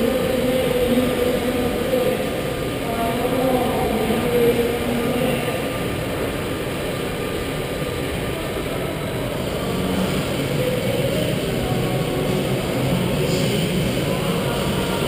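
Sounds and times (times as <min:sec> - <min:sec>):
electric go-kart driving: 0:00.0 - 0:15.0.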